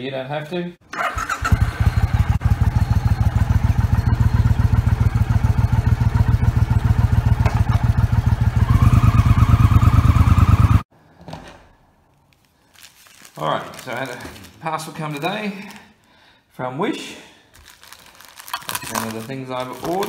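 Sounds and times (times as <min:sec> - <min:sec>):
motorcycle engine revving: 0:01.0 - 0:10.9.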